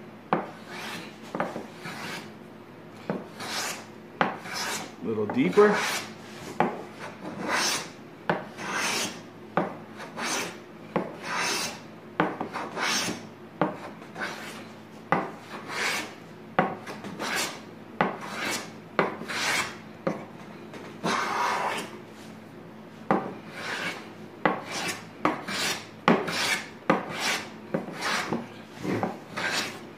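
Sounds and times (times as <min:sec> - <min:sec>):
hand plane swishing on wood: 0:00.6 - 0:02.3, 0:03.3 - 0:03.8, 0:04.4 - 0:04.9, 0:05.7 - 0:07.9, 0:08.6 - 0:09.2, 0:11.2 - 0:11.8, 0:18.2 - 0:18.7, 0:19.3 - 0:19.8, 0:21.0 - 0:21.9, 0:23.5 - 0:24.0, 0:24.6 - 0:29.8.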